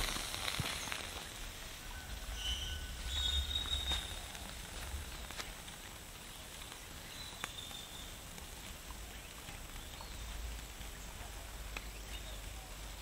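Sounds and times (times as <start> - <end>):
high insect-like tone: 0.0 - 1.4
steady faint hiss: 0.0 - 13.0.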